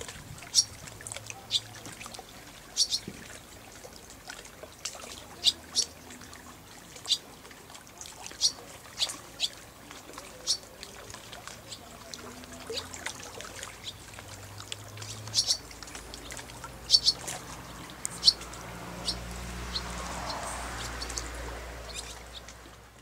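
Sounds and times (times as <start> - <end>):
water lapping and trickling: 0.0 - 23.0
swallows chirping: 1.3 - 1.8, 2.7 - 3.1, 5.0 - 6.0, 7.0 - 7.3, 8.2 - 14.2, 14.9 - 22.6.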